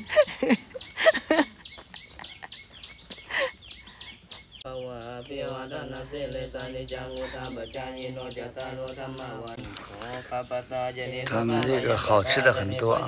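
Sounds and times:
people laughing: 0:00.0 - 0:03.6
bird chirping: 0:00.0 - 0:13.0
monks chanting in unison: 0:04.6 - 0:13.0.

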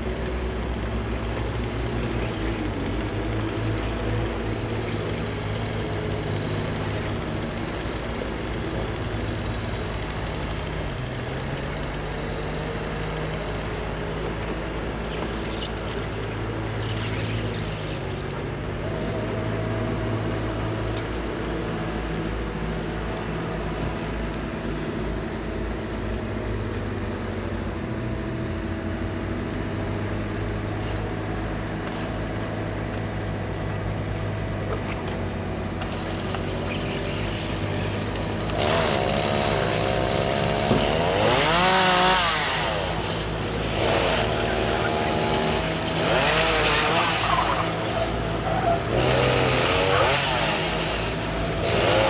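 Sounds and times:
motor running: 0:34.8 - 0:52.0.

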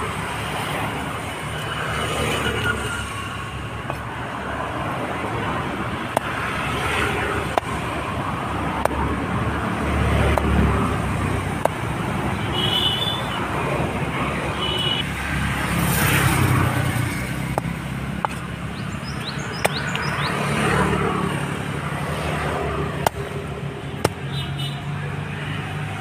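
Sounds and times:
traffic and street noise: 0:00.0 - 0:26.0
knife chopping on wooden block: 0:24.0 - 0:24.2.

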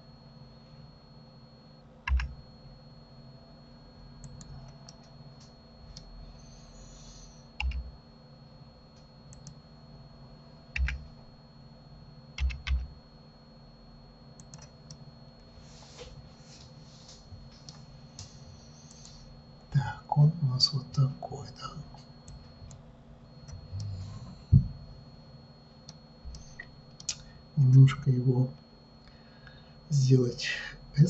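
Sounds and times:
faint steady hum: 0:00.0 - 0:31.0
keyboard and mouse clicks: 0:07.6 - 0:07.8, 0:10.8 - 0:11.0, 0:14.4 - 0:15.0.

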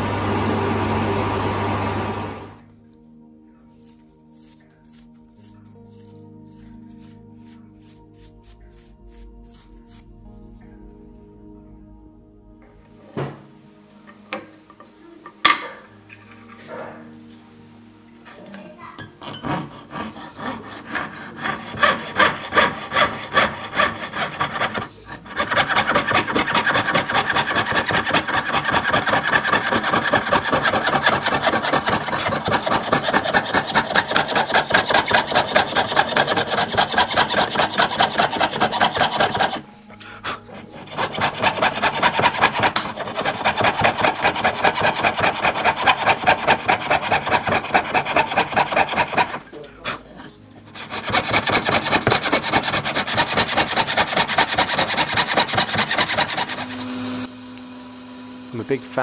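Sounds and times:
saw cutting through brass: 0:19.0 - 0:50.0, 0:50.7 - 0:57.3, 0:58.4 - 0:59.0.

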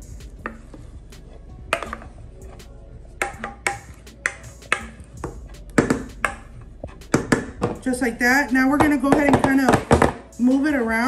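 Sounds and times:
spatula scraping metal bowl: 0:00.2 - 0:07.9.

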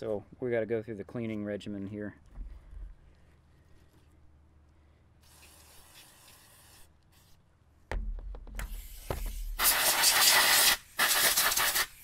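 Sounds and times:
spraying hiss: 0:05.2 - 0:07.4, 0:08.6 - 0:12.0.

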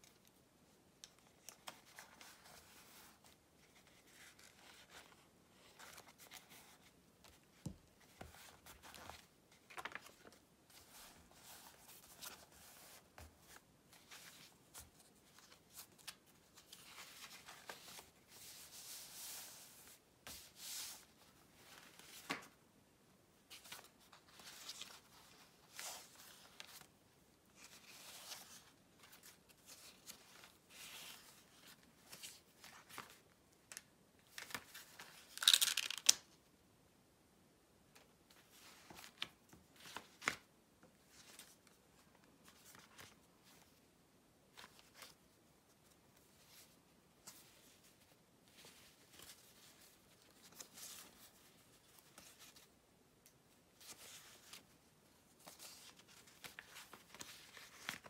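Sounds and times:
paper rustling and crinkling: 0:01.2 - 0:22.6, 0:53.8 - 0:58.0.

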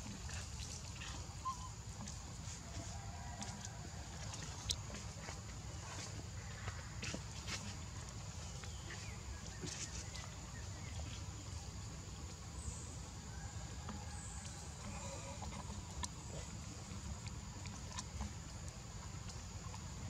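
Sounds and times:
faint animal calls: 0:00.1 - 0:03.7, 0:13.9 - 0:18.3.

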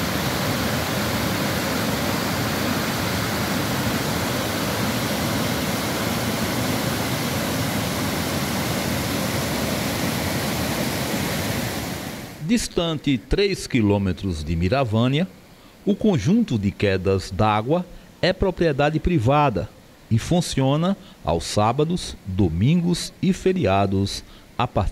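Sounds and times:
water rushing over rocks: 0:00.0 - 0:12.4.

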